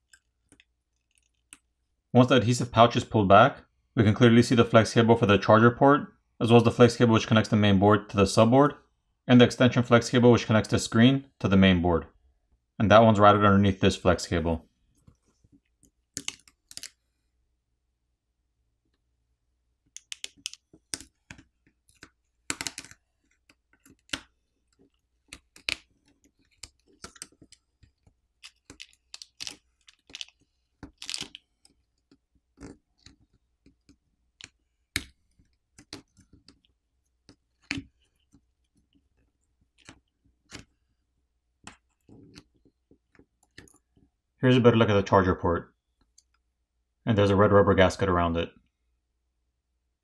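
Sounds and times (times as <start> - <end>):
small clicks and crackles: 0.0 - 1.7, 20.0 - 40.8.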